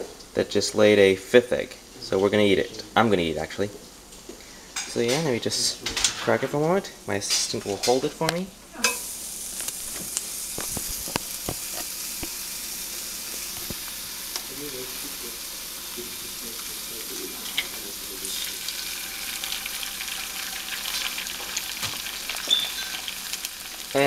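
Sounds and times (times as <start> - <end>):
egg sizzling in a skillet: 8.8 - 24.0.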